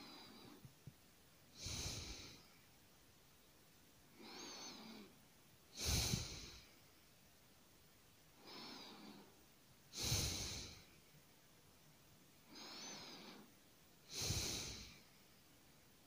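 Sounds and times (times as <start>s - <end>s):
person breathing heavily in sleep: 0.0s - 0.7s, 1.5s - 2.5s, 4.1s - 6.8s, 8.4s - 11.0s, 12.4s - 15.2s.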